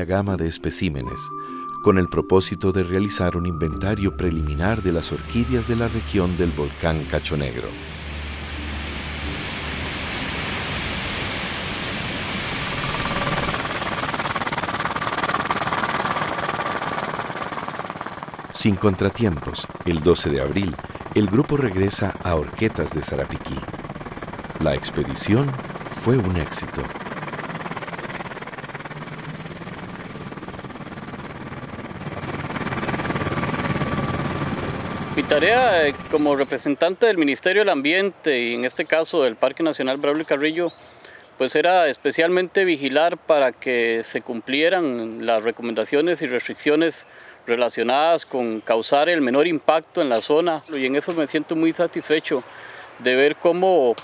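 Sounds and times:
aircraft engine drone: 0:02.6 - 0:36.6
helicopter running: 0:03.3 - 0:36.6.

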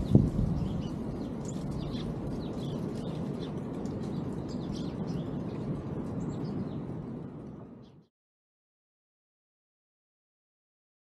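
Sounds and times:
low background rumble: 0:00.0 - 0:08.1
small songbirds chirping: 0:00.0 - 0:08.1.

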